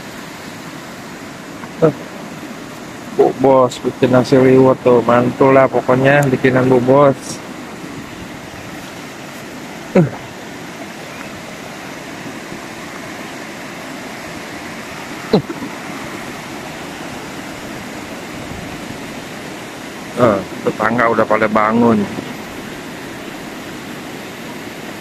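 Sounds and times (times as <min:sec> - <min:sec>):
stream rushing over rocks: 0:00.0 - 0:25.0.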